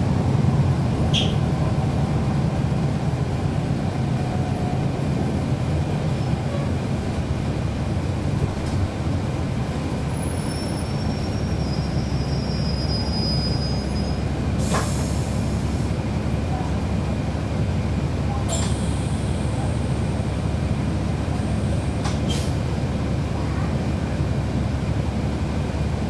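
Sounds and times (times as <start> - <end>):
bus engine rumble: 0.0 - 26.0
faint high squeal: 10.2 - 14.2.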